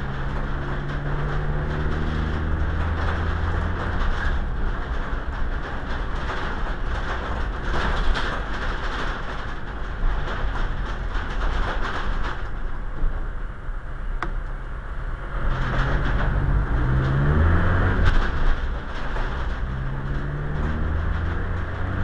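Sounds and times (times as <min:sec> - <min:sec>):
vehicle engine running: 0:00.0 - 0:08.0, 0:13.9 - 0:22.0
light clicks and rattles: 0:00.0 - 0:13.2, 0:15.5 - 0:22.0.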